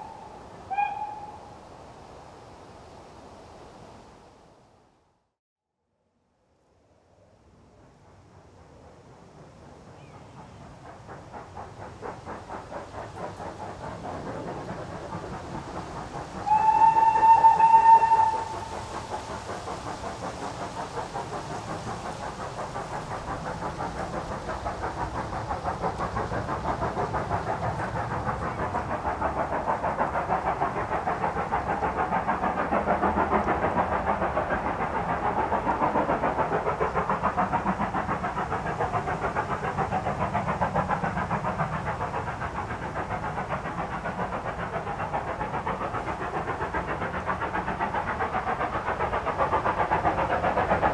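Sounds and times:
steam locomotive whistle: 0.0 - 1.5, 16.4 - 18.8
steam locomotive chuffing: 0.0 - 1.8, 7.4 - 50.9.

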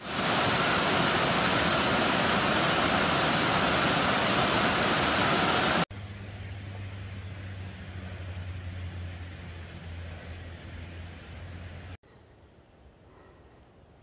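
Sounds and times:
waterfall rushing over rocks: 0.0 - 5.9
low hum: 5.9 - 13.6.

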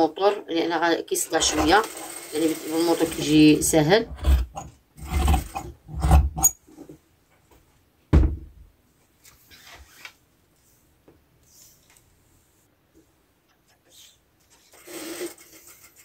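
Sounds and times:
thud: 8.1 - 8.7.

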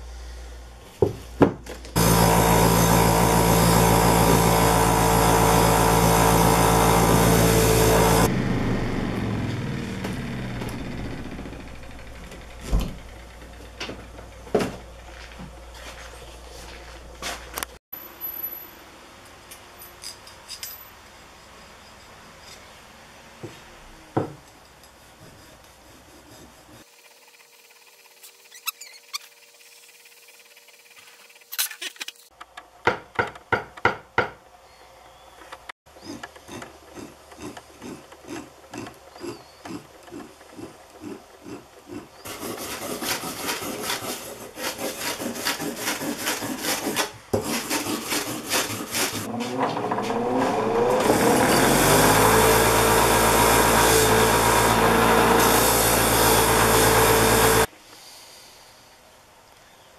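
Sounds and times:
grinder motor hum: 2.0 - 14.5, 49.2 - 57.7
wire wheel brushing steel file: 24.6 - 31.8, 36.0 - 57.7.

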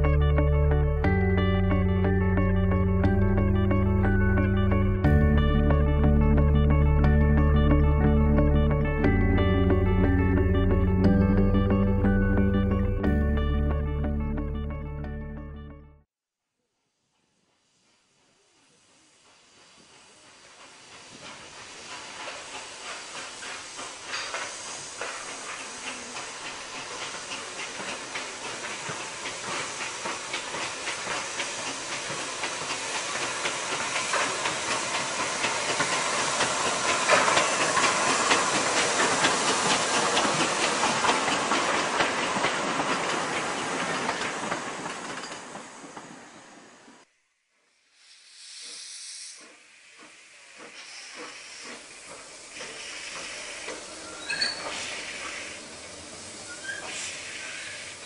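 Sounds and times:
steam locomotive exhaust beat: 0.0 - 15.8, 17.7 - 46.2, 47.9 - 58.0
steam hiss: 17.2 - 58.0.

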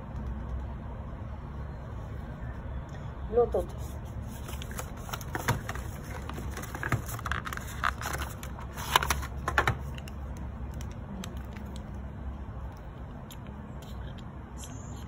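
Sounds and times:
plastic wrap rustling: 4.2 - 9.8.

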